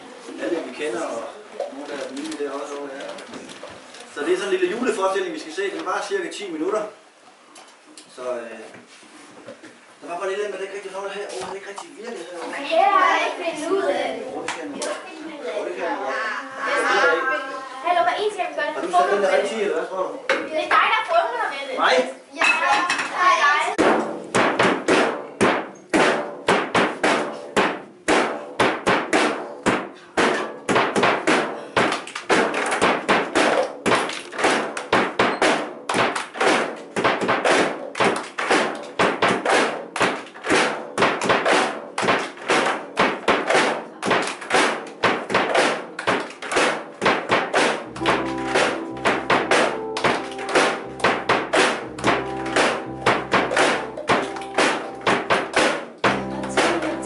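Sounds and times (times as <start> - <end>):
children clapping a rhythm: 23.8 - 57.0
electric keyboard chords: 47.8 - 57.0.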